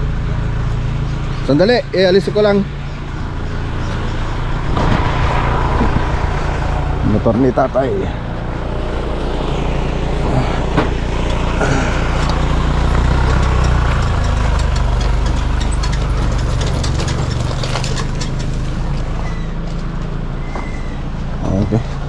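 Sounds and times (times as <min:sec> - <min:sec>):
truck engine running: 0:00.0 - 0:22.0.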